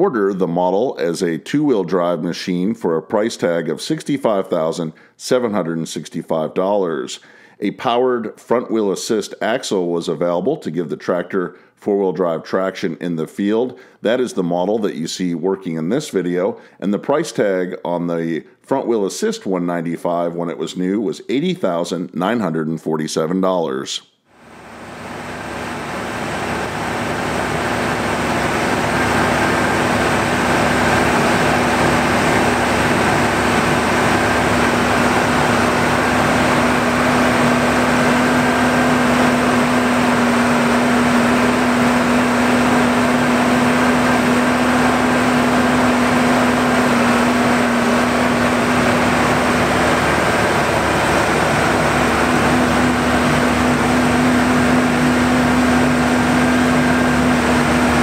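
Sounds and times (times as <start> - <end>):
diesel tractors running: 24.5 - 58.0
unloading machinery running: 24.6 - 58.0.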